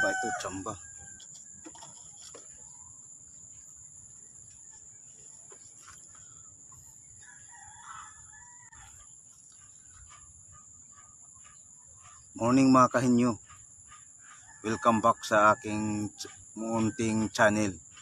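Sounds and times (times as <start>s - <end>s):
rooster crowing faintly: 0.0s - 1.3s.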